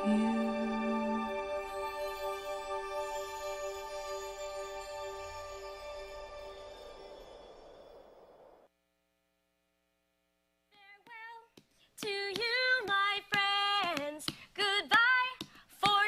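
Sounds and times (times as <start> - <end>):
recorded music: 0.0 - 8.5.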